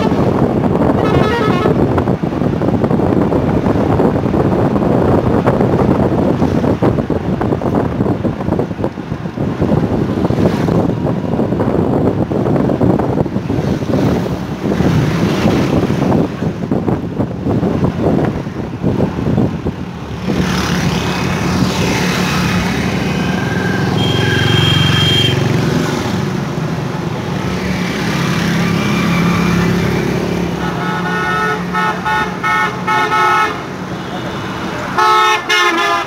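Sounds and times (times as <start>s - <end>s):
car horn: 0.0s - 1.9s, 23.0s - 25.5s, 30.6s - 36.0s
wind buffeting microphone: 0.0s - 35.0s
road traffic: 0.0s - 36.0s.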